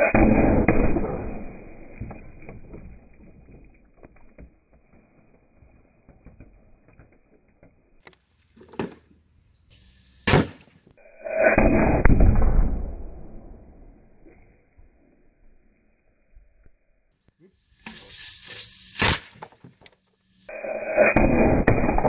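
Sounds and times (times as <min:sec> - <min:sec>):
air gun shot: 0:00.0 - 0:02.0, 0:10.2 - 0:13.5, 0:17.8 - 0:19.6, 0:20.5 - 0:22.0.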